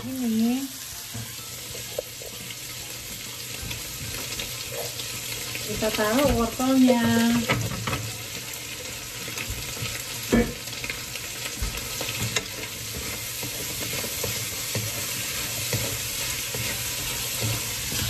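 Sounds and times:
food sizzling in wok: 0.0s - 18.0s
spatula scraping pan: 11.6s - 18.0s.

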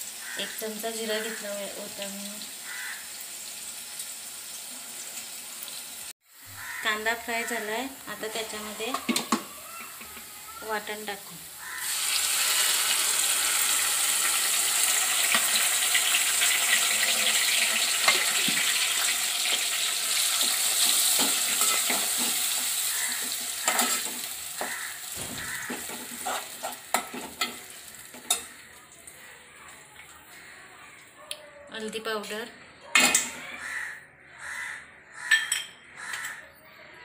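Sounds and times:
paste sizzling in hot oil: 0.0s - 29.5s.

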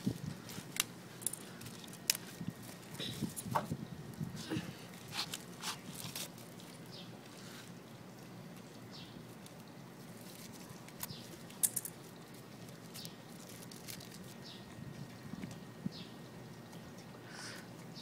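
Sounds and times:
paper packet crinkling: 4.8s - 7.5s, 9.3s - 14.4s.

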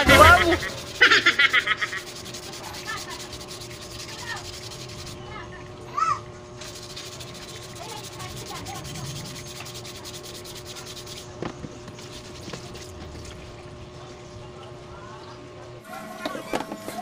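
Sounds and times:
hand sanding scraping strokes: 0.0s - 5.4s, 6.6s - 13.5s.

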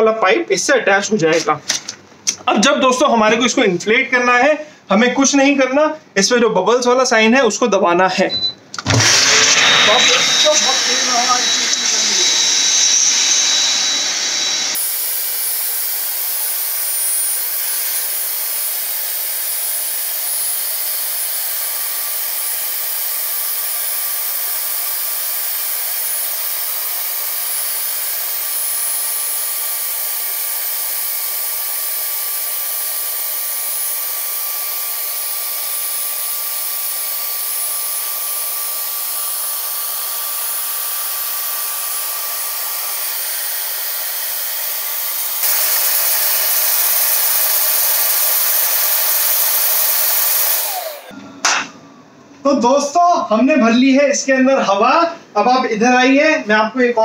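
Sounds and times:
air blower running: 8.8s - 51.2s.

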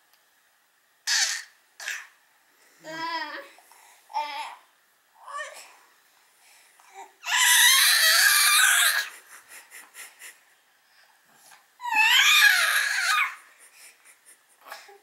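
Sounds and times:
baby squealing cries: 7.2s - 9.1s, 11.8s - 13.4s.

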